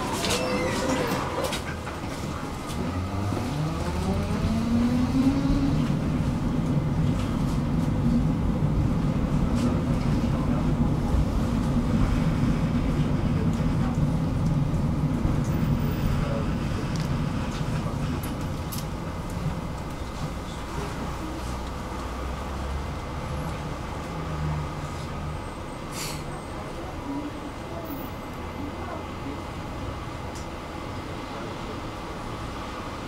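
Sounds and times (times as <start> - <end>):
tram motor whine: 0.0 - 25.9
wheels rumbling on rails: 0.0 - 33.0.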